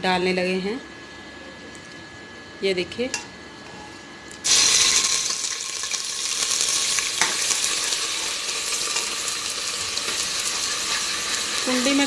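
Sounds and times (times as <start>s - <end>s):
garlic sizzling in hot oil: 4.4s - 12.0s.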